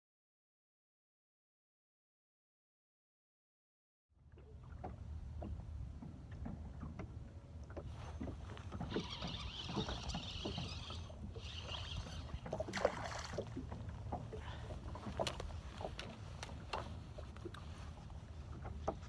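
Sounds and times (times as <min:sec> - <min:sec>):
boat engine low rumble: 0:04.1 - 0:19.0
knocks and clicks of gear: 0:15.0 - 0:17.6.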